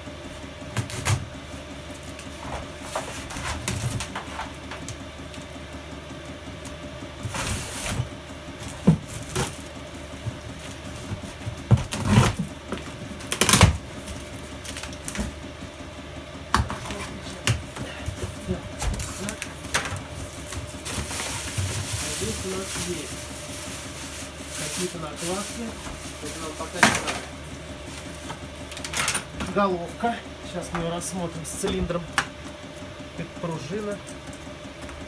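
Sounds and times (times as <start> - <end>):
packing tape cut and pulled: 0.8 - 1.2, 10.7 - 15.3
cardboard flaps rustling and scraping: 7.2 - 15.4, 16.7 - 27.3.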